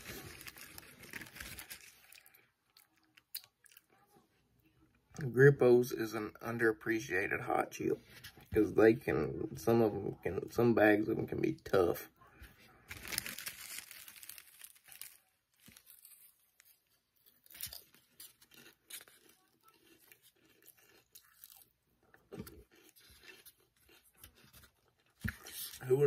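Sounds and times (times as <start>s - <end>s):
potato chips being chewed: 0.0s - 4.1s, 12.9s - 26.0s.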